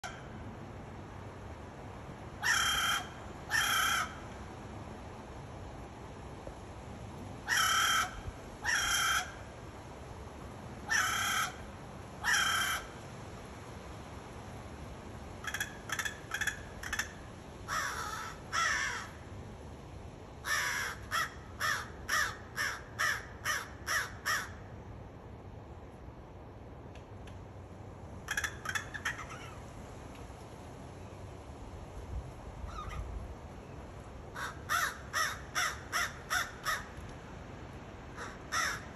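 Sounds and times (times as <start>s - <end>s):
crow cawing: 2.4s - 4.2s, 7.5s - 9.4s, 10.9s - 11.6s, 12.2s - 13.0s, 15.4s - 19.2s, 20.4s - 24.6s, 28.3s - 29.6s, 34.4s - 37.0s, 38.2s - 38.9s.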